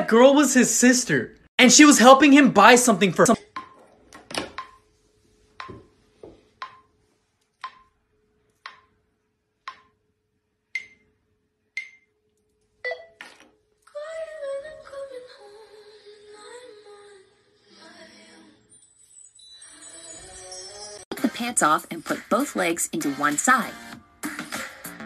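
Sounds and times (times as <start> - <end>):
music: 14.0 - 25.0.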